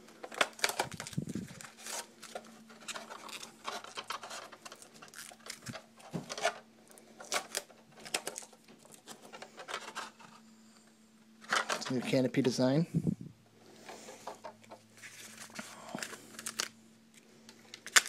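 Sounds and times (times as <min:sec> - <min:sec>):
foam sheet rustling and crinkling: 0:00.3 - 0:06.6.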